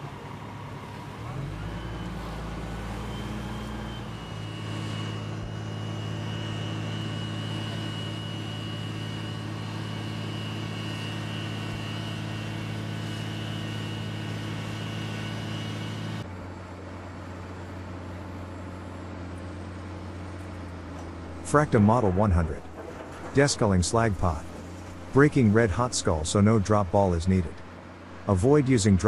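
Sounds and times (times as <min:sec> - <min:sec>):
heavy vehicle engine running: 0:00.0 - 0:29.0
high whine: 0:01.4 - 0:16.2.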